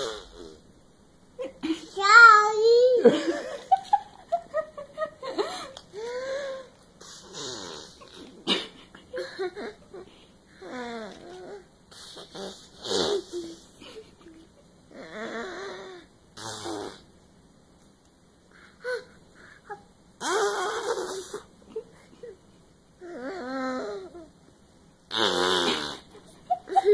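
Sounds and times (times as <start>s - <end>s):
toddler blowing fart noises: 0.0s - 0.7s, 7.0s - 8.4s, 10.6s - 13.6s, 14.9s - 17.1s, 20.2s - 21.5s, 25.1s - 26.2s.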